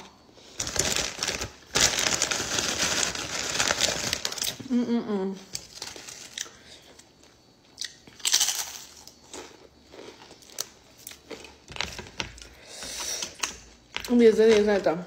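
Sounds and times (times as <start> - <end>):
food handling clicks and rustles: 0.5 - 4.6, 5.5 - 7.1, 10.2 - 15.0
potato chips crunching: 7.8 - 11.6.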